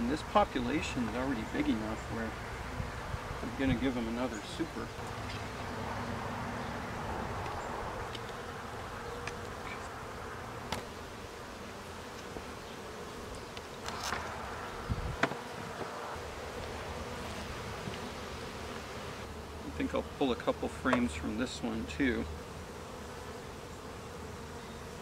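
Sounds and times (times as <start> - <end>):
bees buzzing: 0.0 - 25.0
wooden hive boxes knocking: 15.2 - 16.0, 20.9 - 21.2.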